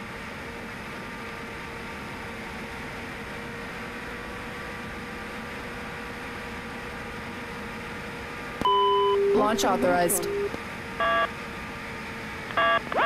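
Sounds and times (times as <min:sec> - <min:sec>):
faint steady hum: 0:08.6 - 0:11.4.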